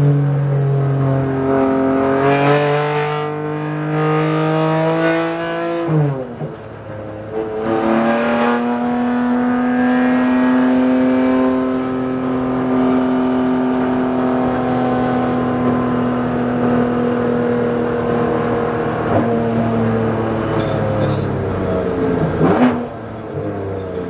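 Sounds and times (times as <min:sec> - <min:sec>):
race car engine revving: 0:17.8 - 0:24.0.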